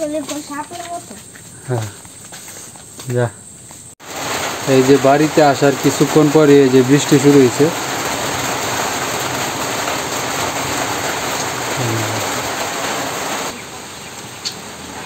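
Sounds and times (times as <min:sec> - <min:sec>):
steady rain falling: 0:04.0 - 0:15.0.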